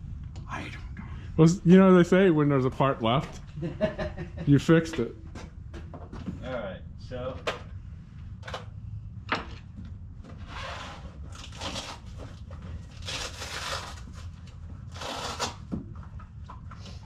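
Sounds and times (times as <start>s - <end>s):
steady low rumble: 0.0s - 10.4s.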